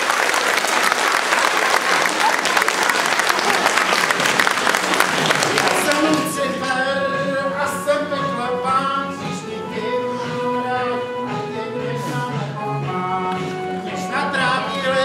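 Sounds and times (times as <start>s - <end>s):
audience applause: 0.0s - 6.8s
music with singing voices: 5.2s - 15.0s.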